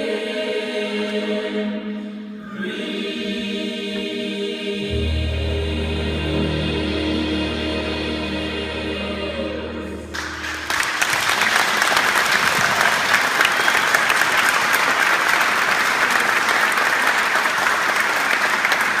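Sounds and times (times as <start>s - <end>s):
choir holding a chord: 0.0s - 12.4s
audience applause: 10.2s - 19.0s.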